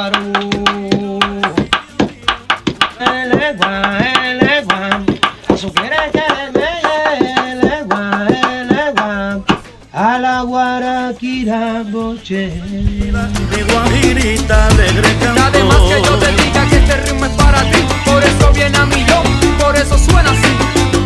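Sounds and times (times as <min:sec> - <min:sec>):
pestle pounding in wooden mortar: 0:00.0 - 0:09.7
man singing: 0:00.0 - 0:21.0.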